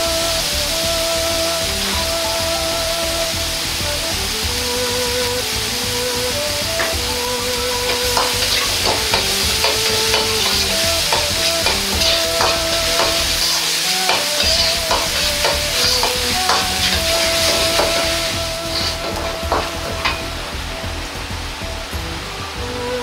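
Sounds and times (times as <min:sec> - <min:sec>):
garlic and onions sizzling in oil: 0:00.0 - 0:22.8
metal ladle scraping a wok: 0:07.9 - 0:20.3.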